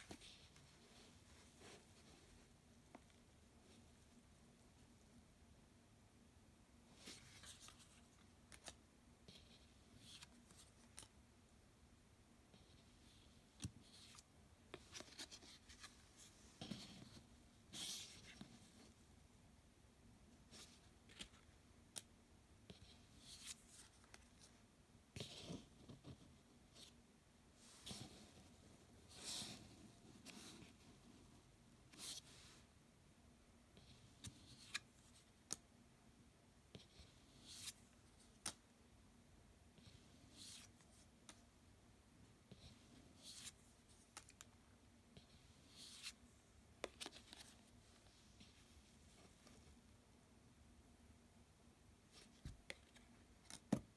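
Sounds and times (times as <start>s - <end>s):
cards sliding swishes: 45.7s - 46.2s.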